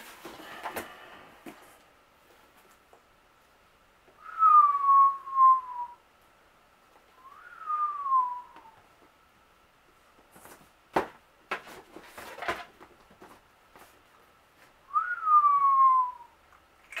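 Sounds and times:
man whistling falling notes: 0:04.2 - 0:06.0, 0:07.2 - 0:08.8, 0:14.9 - 0:16.4.

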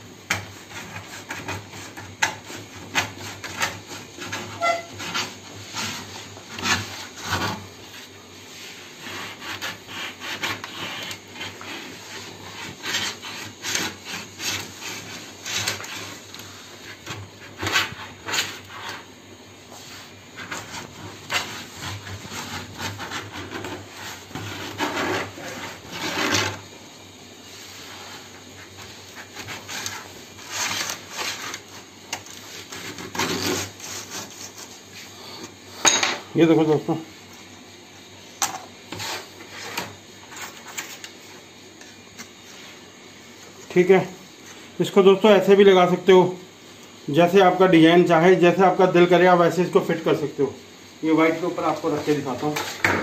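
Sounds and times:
needle scraping laminate sheet: 0:00.3 - 0:26.7, 0:27.5 - 0:35.3.

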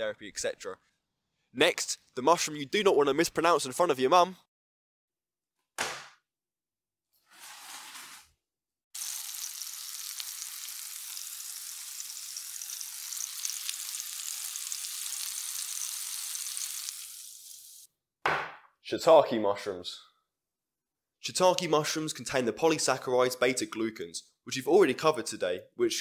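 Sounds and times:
mushrooms sizzling in a frying pan: 0:09.0 - 0:17.9.

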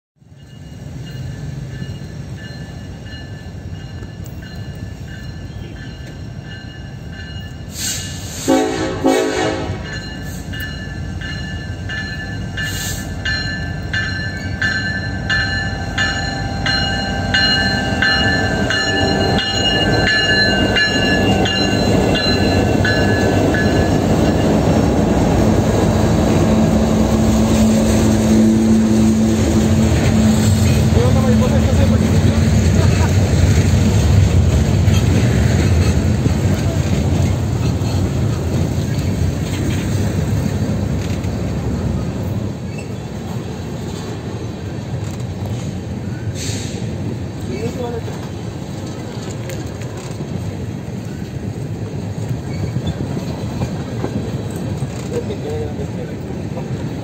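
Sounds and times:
freight train rumbling past: 0:00.2 - 0:57.0
train horn blast: 0:08.3 - 0:09.9, 0:26.4 - 0:32.8.

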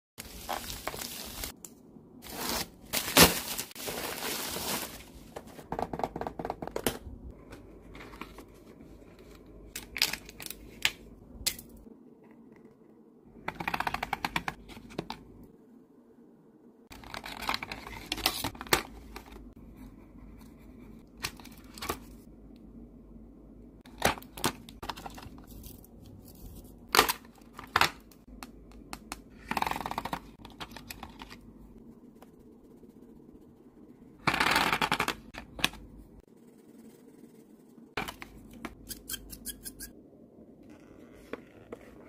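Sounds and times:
plastic sheet crinkling: 0:02.2 - 0:05.2.

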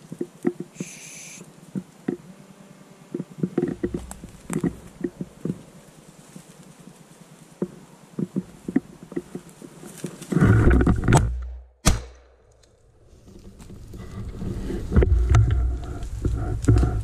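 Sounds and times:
bracken crackling: 0:00.0 - 0:17.0
rustling through undergrowth: 0:00.0 - 0:17.0
shotgun shot: 0:11.8 - 0:12.4
heavy rumble through cover: 0:13.2 - 0:17.0.

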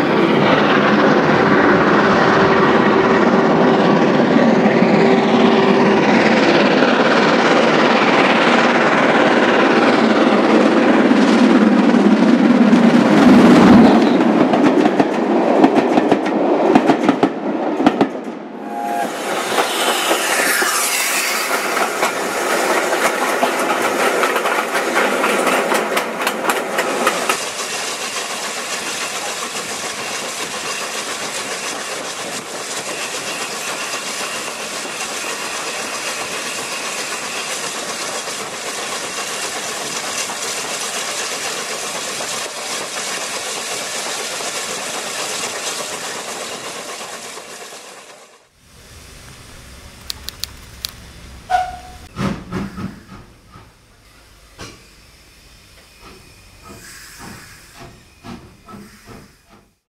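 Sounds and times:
train wheels clicking over rail joints: 0:05.7 - 0:18.5, 0:19.2 - 0:54.9, 0:55.8 - 0:59.8
steady even noise: 0:18.4 - 0:23.3.

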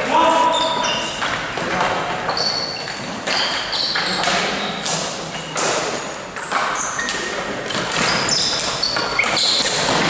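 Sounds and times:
short high squeaks: 0:02.3 - 0:04.8, 0:08.1 - 0:09.8.

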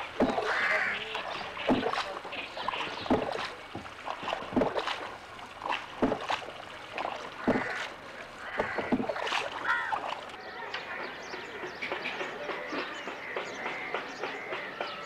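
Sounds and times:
paddle strokes in water: 0:00.0 - 0:10.4
water swishing: 0:00.0 - 0:10.4.

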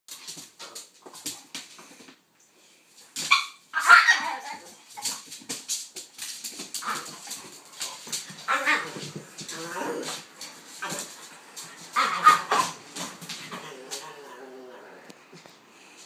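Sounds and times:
dog barks: 0:12.0 - 0:12.8.

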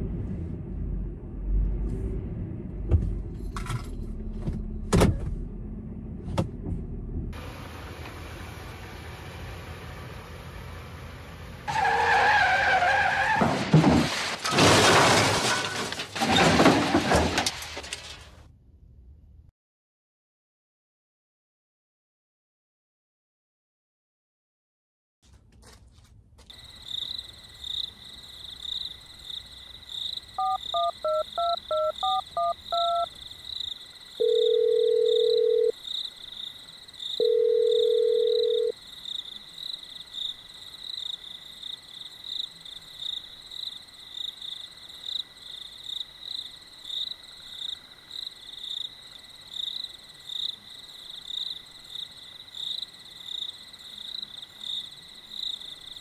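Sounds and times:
crickets chirping: 0:26.5 - 0:56.0
phone ringing tones: 0:30.4 - 0:33.1, 0:34.2 - 0:35.8, 0:37.2 - 0:38.8
touch-tone keypad beeps: 0:30.4 - 0:33.1.

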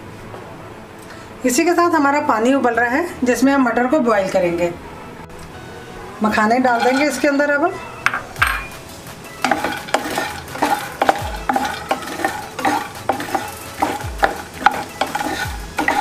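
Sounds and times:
wooden spatula scraping pan: 0:06.6 - 0:07.4, 0:09.4 - 0:16.0
oil sizzling: 0:08.7 - 0:16.0.

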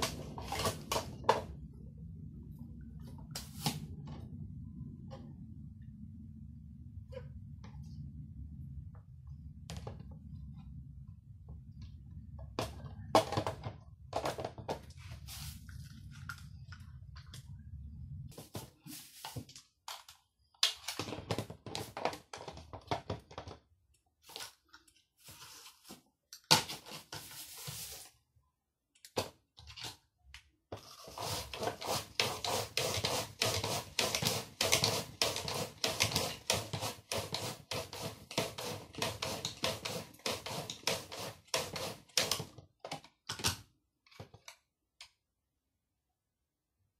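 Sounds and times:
low hum: 0:00.0 - 0:12.5
vegetable scraping over slicer blade: 0:30.8 - 0:42.4.

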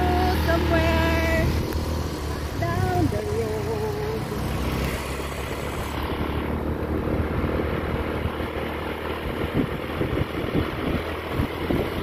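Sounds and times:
motor scooter running: 0:00.0 - 0:12.0
wind buffeting microphone: 0:05.9 - 0:12.0.

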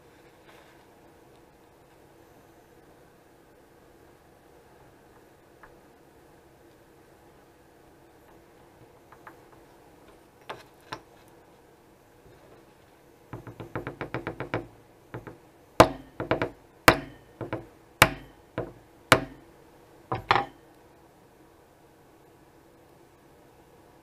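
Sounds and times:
small hammer tapping metal: 0:13.4 - 0:19.5, 0:20.1 - 0:20.6.

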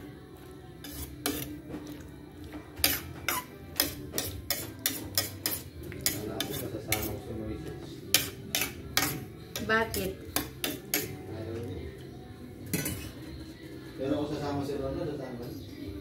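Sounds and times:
metal utensil clinking on pot: 0:02.8 - 0:07.2, 0:08.1 - 0:11.2, 0:12.7 - 0:13.2.

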